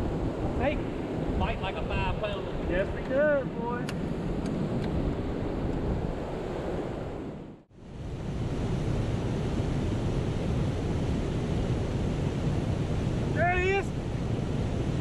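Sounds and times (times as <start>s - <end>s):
wind on the microphone: 0.0s - 15.0s
water rushing over a spillway: 9.6s - 15.0s.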